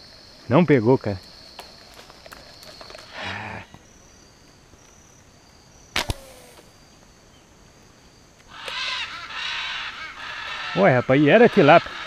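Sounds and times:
slingshot bands snapping: 6.0s - 6.6s.

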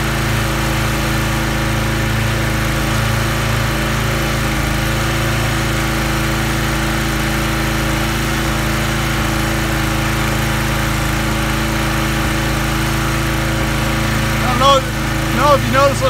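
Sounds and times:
small gas engine running: 0.0s - 16.0s.

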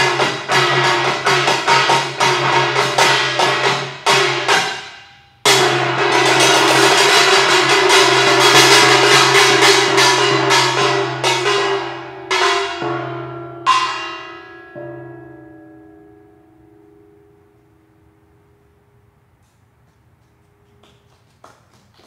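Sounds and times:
gongs struck in fast rhythm: 0.0s - 14.2s.

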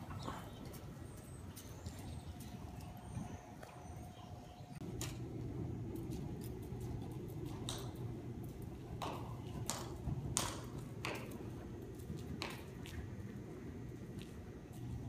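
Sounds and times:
horse cantering on sand: 0.0s - 15.0s
sharp hoof clicks: 5.9s - 15.0s.

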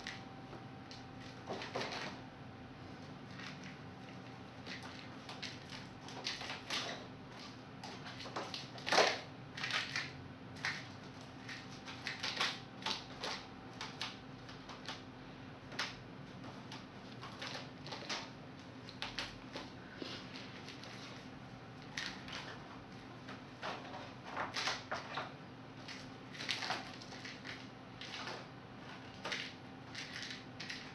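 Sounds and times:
kitten rustling plastic bag: 25.8s - 30.9s.

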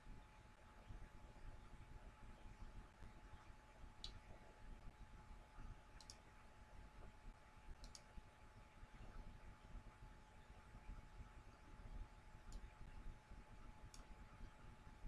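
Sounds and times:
faint steady whine: 0.0s - 15.0s
computer mouse clicks: 6.0s - 6.2s, 7.8s - 8.2s, 12.5s - 12.7s, 13.9s - 14.1s.

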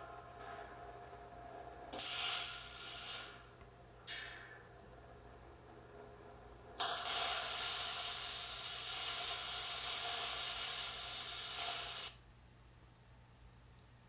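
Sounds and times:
welding arc hissing and crackling: 1.9s - 4.2s, 6.8s - 12.2s.

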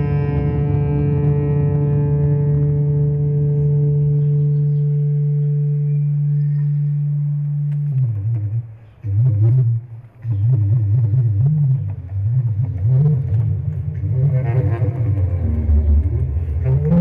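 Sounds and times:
bass clarinet playing: 7.0s - 17.0s.

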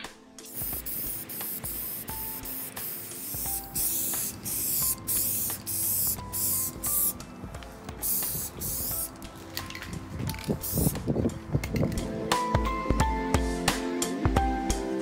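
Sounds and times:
aerosol spray can hissing: 0.4s - 7.2s, 8.0s - 9.2s, 10.5s - 11.0s.

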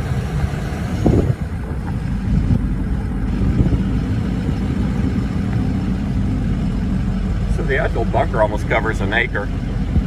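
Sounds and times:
vehicle rumbling over rough track: 0.0s - 10.0s.

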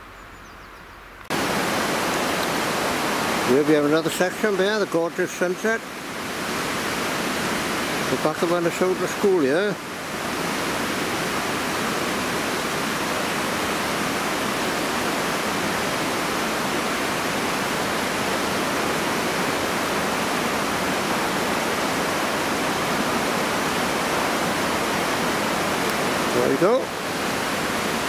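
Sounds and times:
river water rushing over weir: 1.3s - 28.0s.

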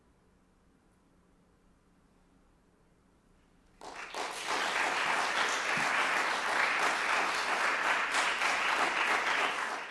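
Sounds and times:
audience applause: 3.8s - 9.9s.

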